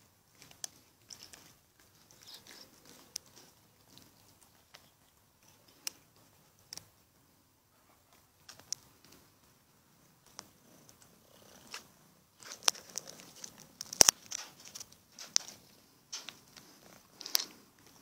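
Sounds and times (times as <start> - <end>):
animals crunching dry kibble: 0.3 - 6.9, 10.3 - 18.0.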